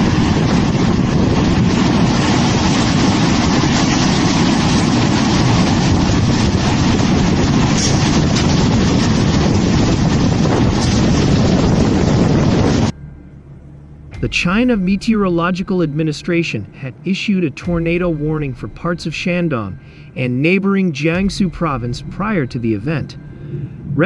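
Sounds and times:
wind buffeting microphone: 0.0 - 13.0, 21.1 - 24.0.

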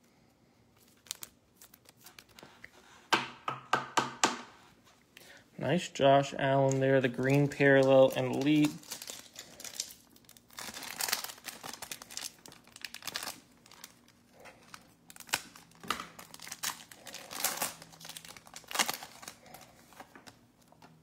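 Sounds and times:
foil wrapper crinkling: 0.8 - 2.6, 6.6 - 20.8.

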